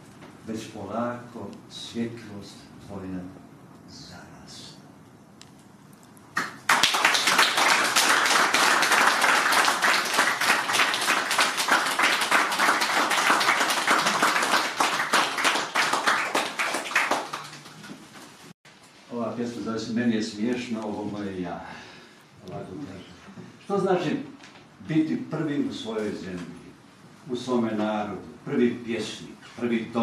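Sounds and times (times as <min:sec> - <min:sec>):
audience applauding: 0:06.4 - 0:18.1.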